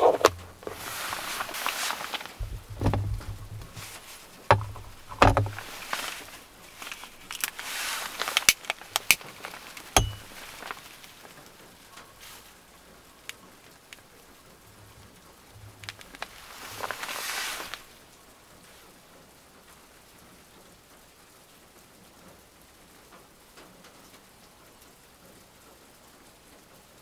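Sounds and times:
plastic lid knocking and rustling: 0.0s - 1.7s, 2.4s - 6.3s, 10.0s - 10.4s.

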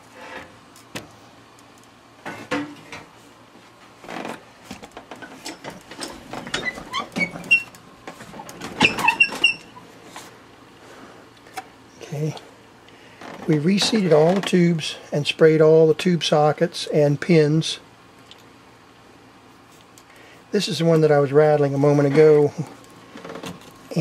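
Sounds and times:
short high squeaks: 8.8s - 9.8s.

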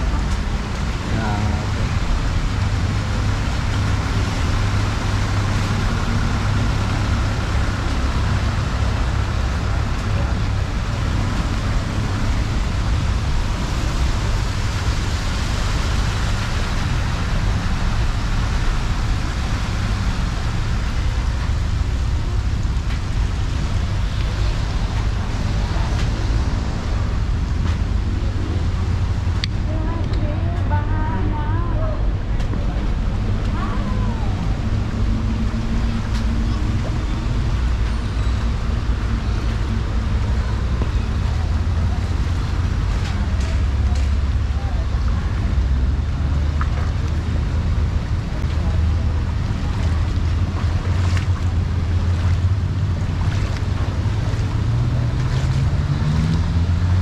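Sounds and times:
street traffic noise: 0.0s - 57.0s.

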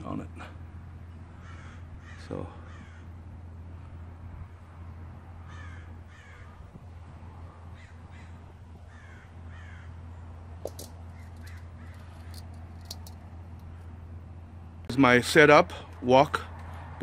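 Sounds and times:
steady low hum: 0.0s - 17.0s
crows cawing: 1.2s - 3.3s, 5.4s - 6.8s, 7.5s - 10.3s, 11.1s - 12.5s
sharp clicks: 10.6s - 13.7s.

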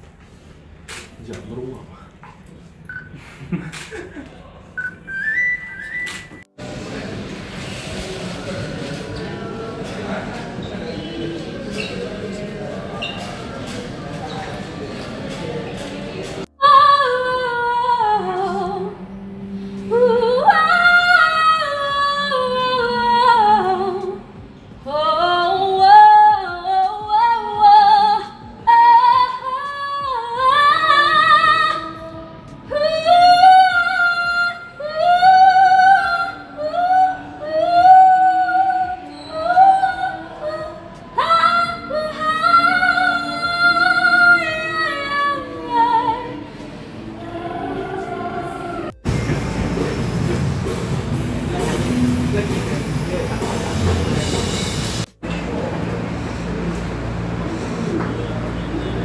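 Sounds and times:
woman singing unaccompanied: 16.6s - 48.9s.

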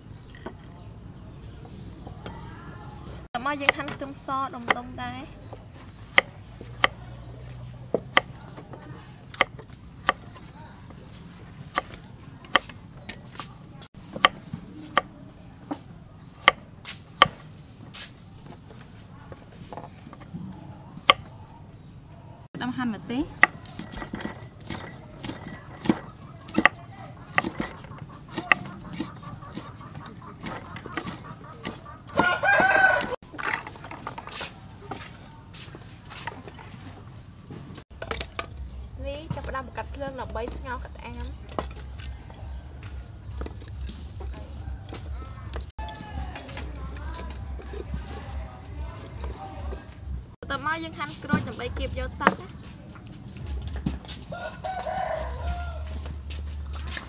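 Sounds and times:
cleaver chopping on wooden block: 11.7s - 13.2s, 23.3s - 33.1s
rooster crowing: 26.0s - 33.2s, 44.3s - 46.5s, 54.2s - 56.3s.

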